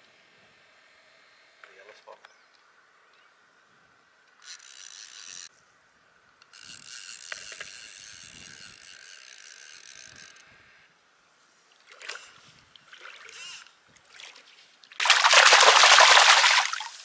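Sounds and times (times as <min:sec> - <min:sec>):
fishing reel drag buzzing: 0:04.4 - 0:05.5, 0:06.5 - 0:10.7, 0:13.2 - 0:13.8.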